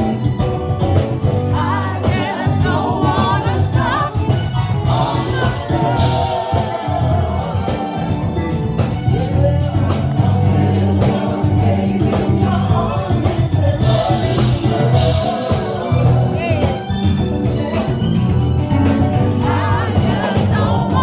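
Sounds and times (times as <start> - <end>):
live band playing: 0.0 - 21.0
woman singing into microphone: 1.5 - 4.6, 19.4 - 21.0.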